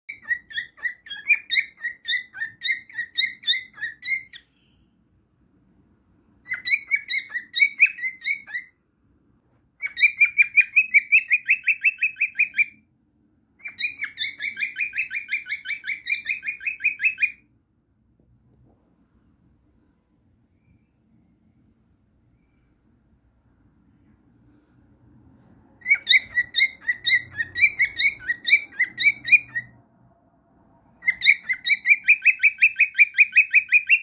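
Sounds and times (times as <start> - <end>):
cockatiel chirping: 0.1 - 4.8, 6.3 - 8.8, 9.5 - 12.9, 13.5 - 17.5, 25.7 - 29.8, 30.8 - 34.0.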